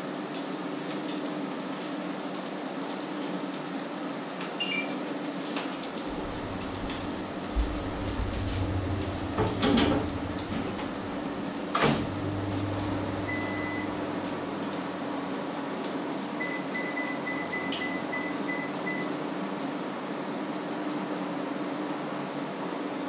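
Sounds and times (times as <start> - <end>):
microwave low hum: 5.9 - 19.7.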